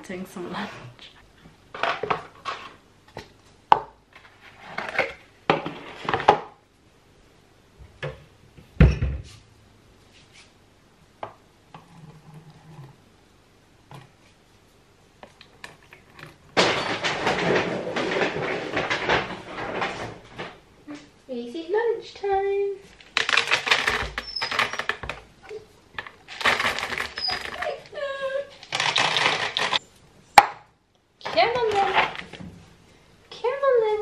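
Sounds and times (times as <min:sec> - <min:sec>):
dry dog food rattling: 0:26.0 - 0:27.9, 0:28.6 - 0:29.8.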